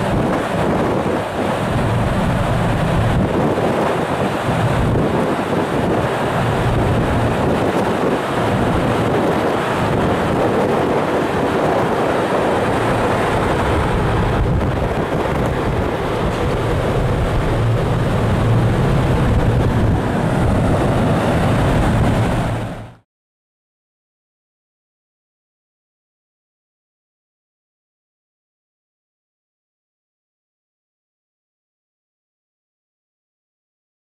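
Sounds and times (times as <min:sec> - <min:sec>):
ferry engines rumbling: 0:00.0 - 0:23.0
wind buffeting microphone: 0:00.0 - 0:23.0.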